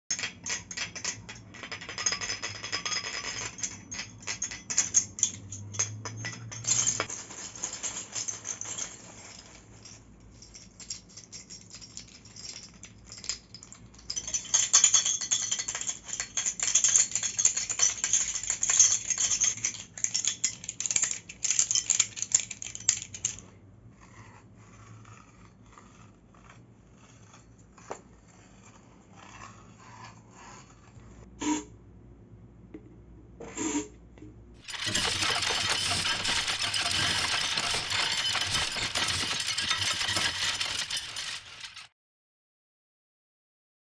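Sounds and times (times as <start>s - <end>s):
metal tubes scraping together: 0.1s - 11.0s, 34.6s - 41.9s
light bulb and metal clinking: 0.1s - 23.4s.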